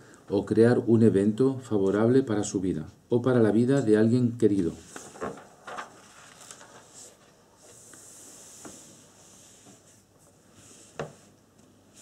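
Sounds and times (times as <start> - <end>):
soft rustle: 4.7 - 12.0.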